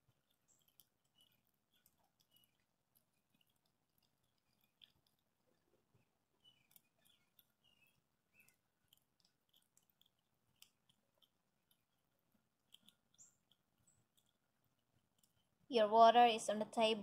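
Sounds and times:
squirrel gnawing nut: 0.0 - 15.8
faint high chirps: 5.9 - 8.8.

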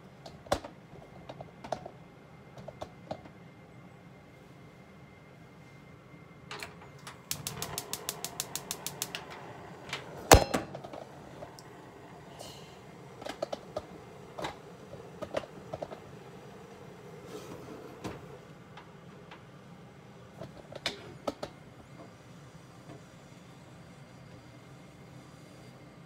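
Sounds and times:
gas stove igniter clicking: 6.6 - 10.7
loud sharp click: 7.3 - 9.2.

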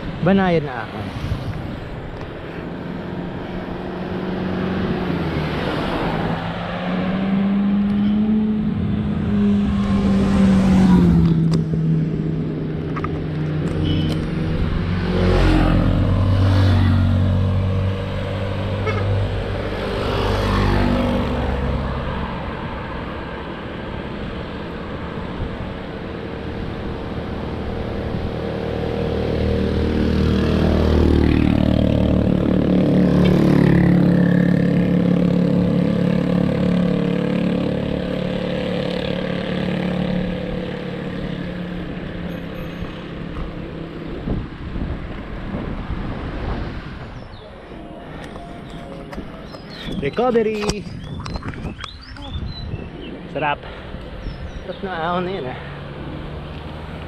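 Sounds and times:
vehicles passing by: 0.0 - 57.0
vehicle engines running: 1.5 - 57.0.

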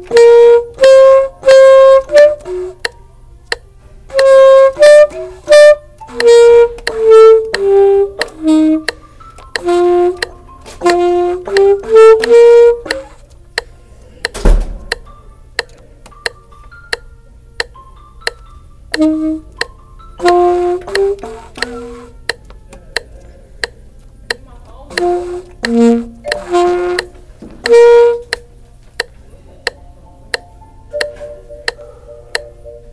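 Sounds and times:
saxophone slow melody: 0.0 - 13.3, 18.2 - 22.4, 24.9 - 28.5
loud thump: 14.4 - 15.0.

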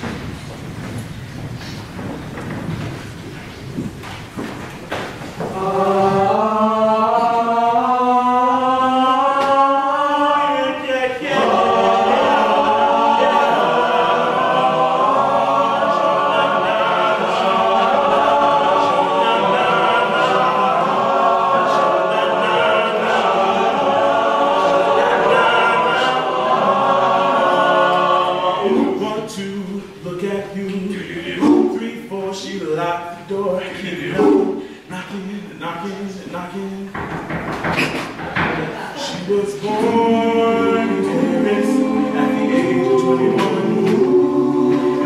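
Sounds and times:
male a cappella group singing: 5.4 - 37.0, 39.0 - 45.0.

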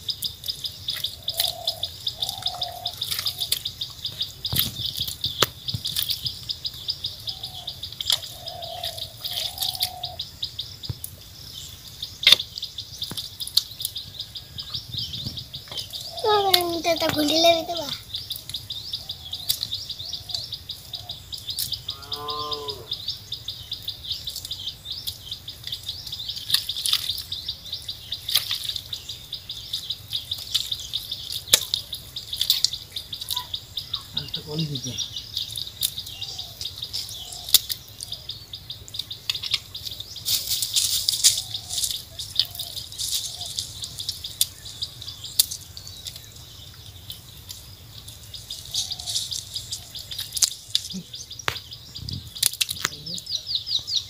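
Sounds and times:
cow lowing: 21.9 - 23.0.

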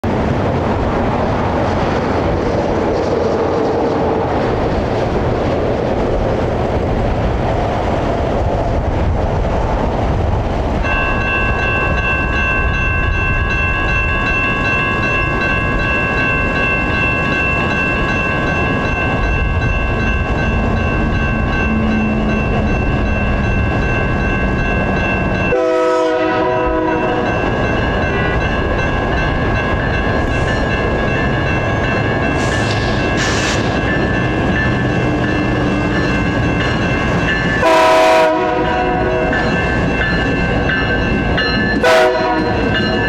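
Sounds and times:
freight train approaching: 0.0 - 43.0
crossing warning bell ringing: 10.7 - 43.0
train horn: 25.5 - 27.3, 37.6 - 39.4, 41.8 - 42.6.

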